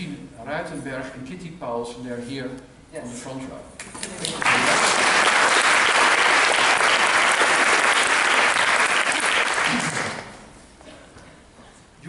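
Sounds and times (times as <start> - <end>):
audience applauding: 4.0 - 10.4.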